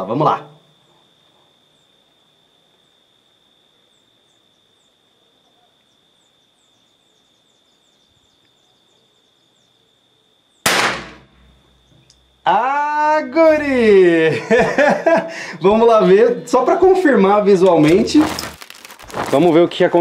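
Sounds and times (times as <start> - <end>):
faint steady background noise: 0.0 - 20.0
rifle shot: 10.6 - 11.5.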